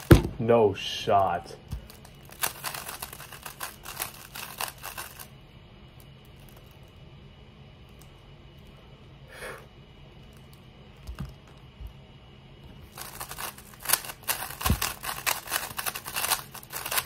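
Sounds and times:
plastic cube clicking rapidly: 0:02.3 - 0:05.3, 0:13.0 - 0:17.0.

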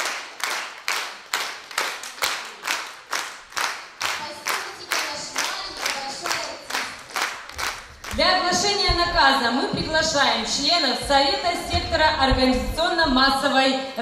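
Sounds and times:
group clapping in unison: 0:00.0 - 0:09.3.

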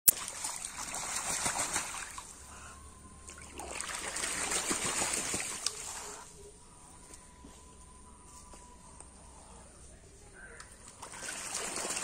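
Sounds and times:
ducks splashing water: 0:00.1 - 0:06.3, 0:10.4 - 0:12.0.

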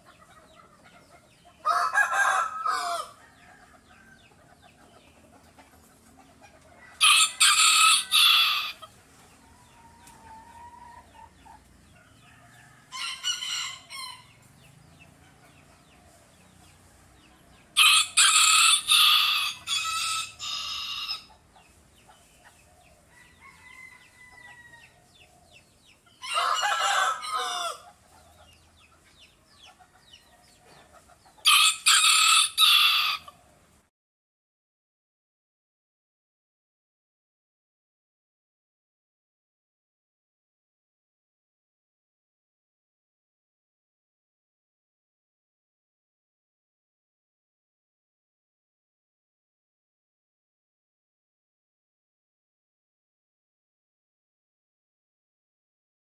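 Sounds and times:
rooster crowing: 0:01.6 - 0:04.2, 0:07.0 - 0:08.8, 0:12.2 - 0:14.3, 0:17.8 - 0:21.3, 0:23.1 - 0:25.1, 0:26.2 - 0:28.0, 0:31.4 - 0:33.4.

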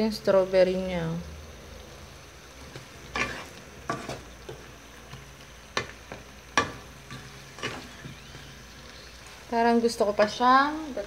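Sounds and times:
light sizzle: 0:00.0 - 0:11.0
spatula knocking and scraping pan: 0:02.6 - 0:08.5.

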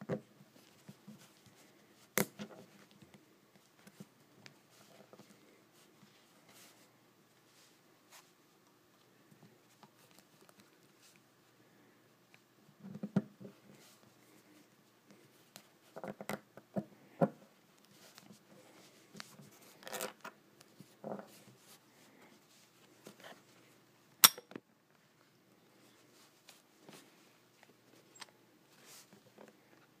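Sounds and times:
sharp metallic click: 0:24.2 - 0:24.5.

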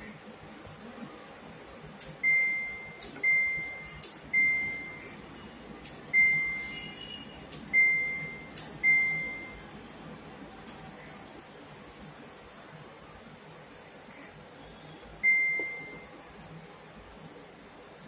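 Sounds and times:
short high beeps: 0:06.1 - 0:09.6, 0:15.2 - 0:16.1.

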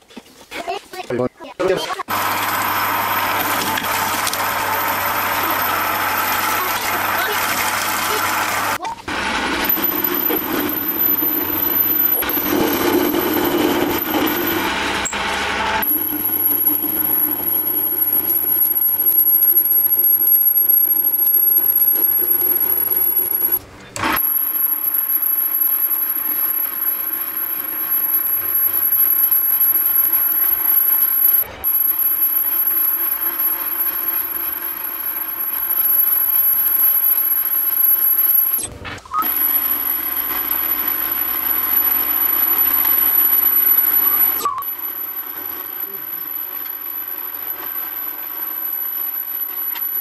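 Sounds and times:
lathe machine hum: 0:02.1 - 0:38.6, 0:39.2 - 0:50.0
lathe tool scraping metal: 0:02.1 - 0:50.0
faint high whine: 0:24.2 - 0:50.0.

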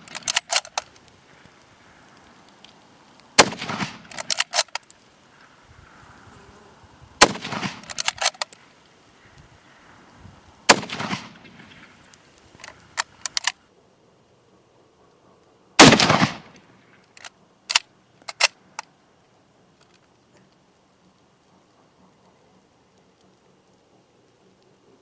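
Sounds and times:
rifle bolt clicks: 0:00.0 - 0:01.1, 0:03.4 - 0:05.0, 0:07.2 - 0:08.6, 0:12.6 - 0:13.6, 0:15.8 - 0:18.9
rifle shots: 0:03.4 - 0:04.9, 0:07.2 - 0:08.5, 0:10.7 - 0:12.0, 0:15.8 - 0:16.6.

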